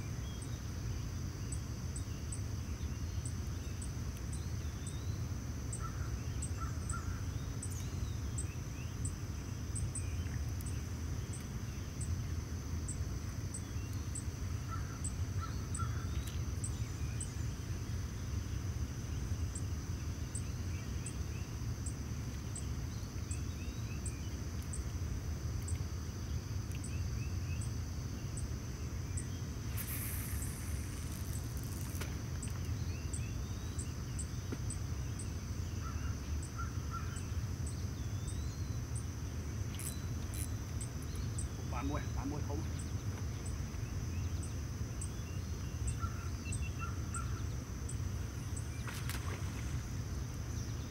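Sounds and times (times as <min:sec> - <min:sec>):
high insect drone: 0:00.0 - 0:50.9
brief rushing hiss: 0:29.6 - 0:32.2.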